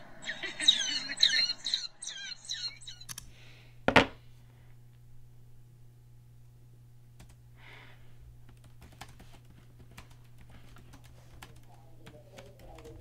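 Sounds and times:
steady low hum: 0:00.0 - 0:13.0
laptop keyboard typing: 0:07.2 - 0:07.4, 0:08.5 - 0:13.0.

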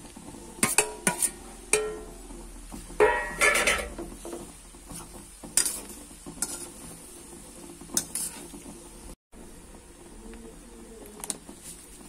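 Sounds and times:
faint sizzle: 0:00.0 - 0:12.0
metal spatula scraping pan: 0:00.4 - 0:08.8.

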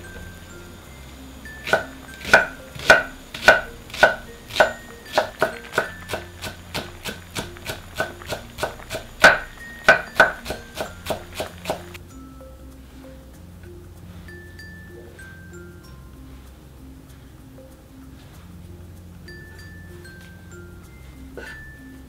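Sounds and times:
knife chopping on wooden board: 0:01.6 - 0:11.9.

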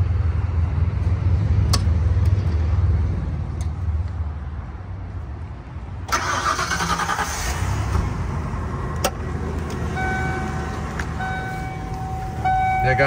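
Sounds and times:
car engine starting and idling: 0:06.0 - 0:13.0
electronic warning chime: 0:10.0 - 0:10.5, 0:11.2 - 0:13.0.

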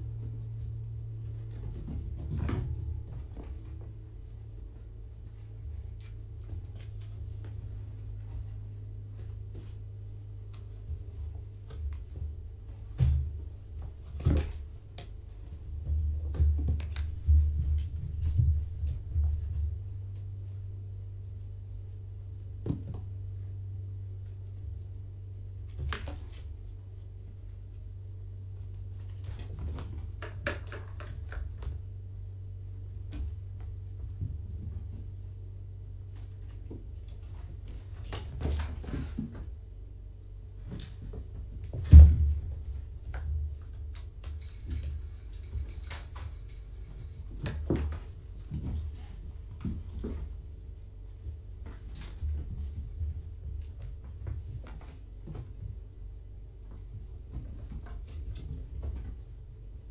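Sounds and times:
steady low hum: 0:00.0 - 0:59.9
kittens knocking toys: 0:29.5 - 0:31.8
heavy thump: 0:41.6 - 0:42.6.

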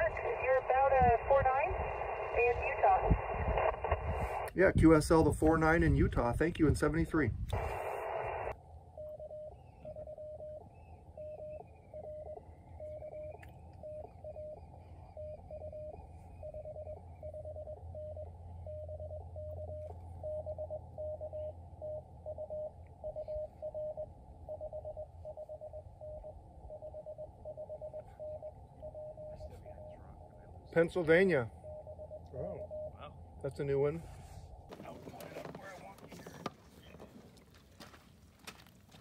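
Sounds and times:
radio receiver hiss: 0:00.0 - 0:04.6, 0:07.5 - 0:08.6
morse code beeps: 0:07.6 - 0:33.0.

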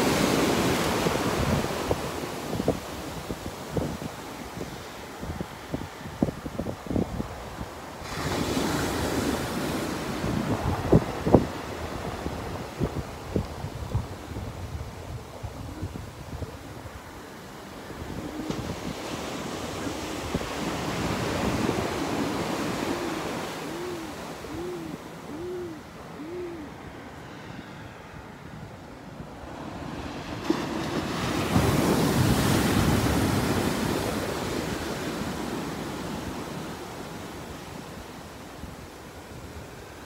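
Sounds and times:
ocean surf breaking on sand: 0:00.0 - 0:40.0.

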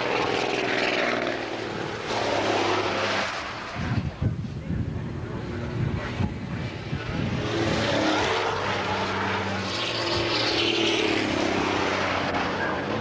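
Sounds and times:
engine drone: 0:00.0 - 0:13.0
vehicle passing at speed: 0:07.0 - 0:13.0.

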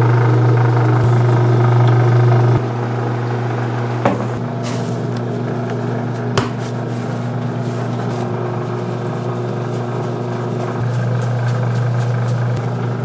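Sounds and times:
machine hum: 0:00.0 - 0:13.0
flour shaken through metal sieve: 0:06.1 - 0:12.7.

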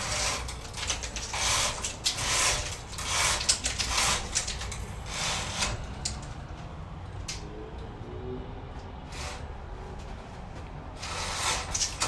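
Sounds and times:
roller shade chain rattling: 0:00.0 - 0:06.6.

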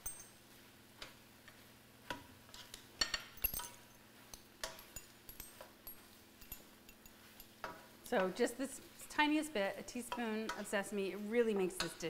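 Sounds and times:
kitchen utensils clinking: 0:02.5 - 0:08.4.

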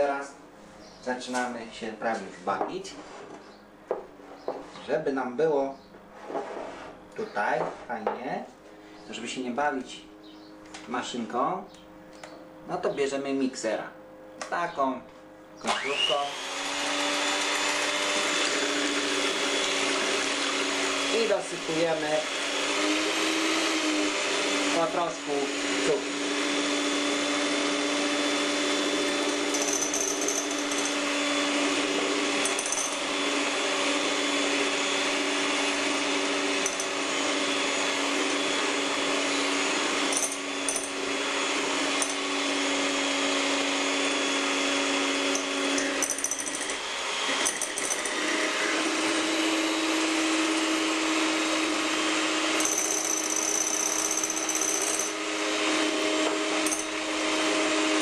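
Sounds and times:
electric hand mixer whipping: 0:15.6 - 0:58.0.

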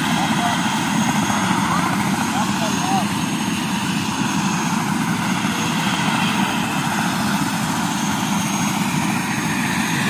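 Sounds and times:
helicopter rotor and engine: 0:00.0 - 0:10.0.

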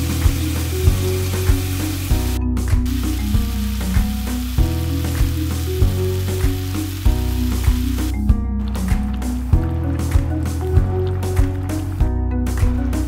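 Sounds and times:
crackling hiss: 0:00.0 - 0:08.2
mellow instrumental music: 0:00.0 - 0:13.0.

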